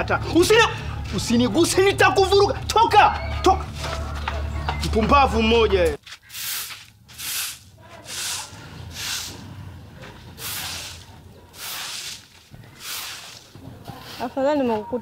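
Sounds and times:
broom sweeping grit on concrete: 6.2 - 9.6, 10.4 - 14.7.

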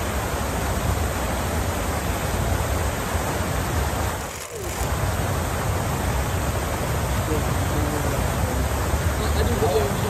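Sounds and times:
fountain jets splashing into pool: 3.2 - 10.0.

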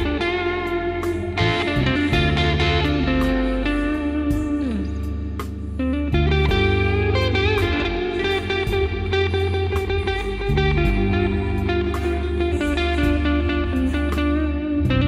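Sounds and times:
bass: 0.0 - 15.0
blues guitar with bending notes: 0.0 - 15.0
steady drum beat: 1.0 - 4.8, 7.4 - 15.0.

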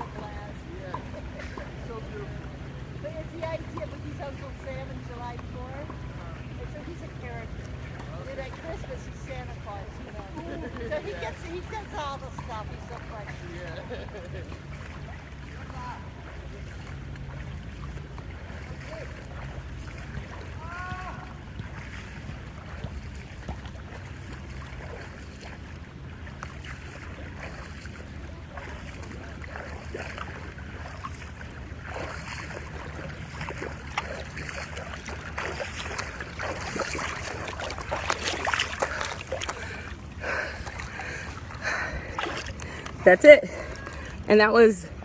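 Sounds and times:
swimmer splashing in water: 0.0 - 45.0
steady low rumble: 12.6 - 45.0.

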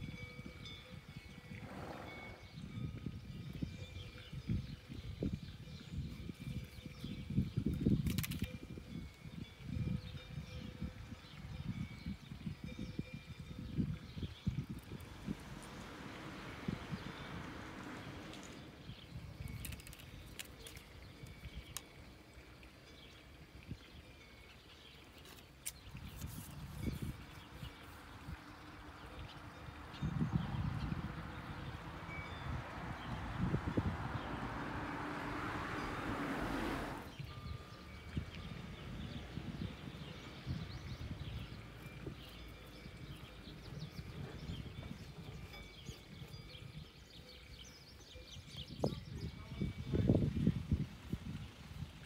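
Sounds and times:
low uneven rumble: 14.3 - 19.6
small birds chirping: 16.6 - 34.4, 37.1 - 50.3.

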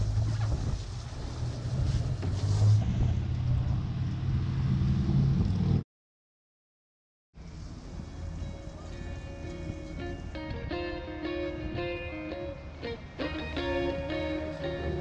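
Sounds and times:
outboard engines idling: 0.0 - 2.8
water noise: 0.0 - 5.7
wind: 0.0 - 5.8, 7.3 - 15.0.

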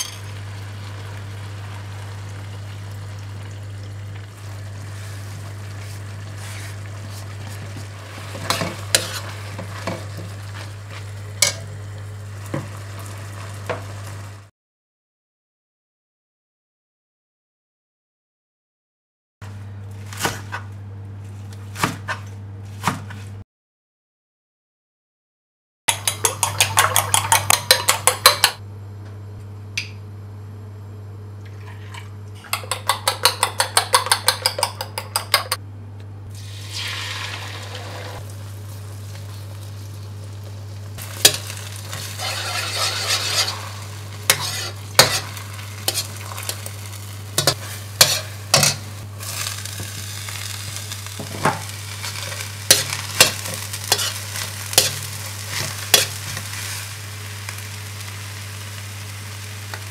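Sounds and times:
fork beating eggs in bowl: 6.5 - 10.0, 25.9 - 28.6, 32.4 - 35.6, 41.2 - 46.6, 47.4 - 48.8
metal ladle scraping wok: 8.2 - 10.2, 41.1 - 46.8, 47.4 - 49.5, 52.0 - 56.4
egg sizzling in hot oil: 36.3 - 59.9.

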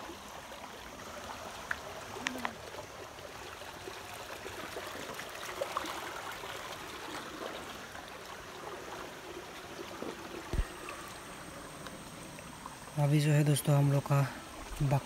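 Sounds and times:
small water splashes: 0.0 - 15.0
stream water trickling: 0.0 - 15.0.

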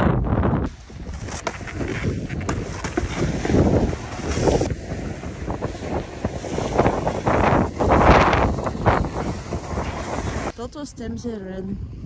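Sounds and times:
wind buffeting microphone: 0.0 - 10.5
snowboard sliding over snow: 0.7 - 10.5.

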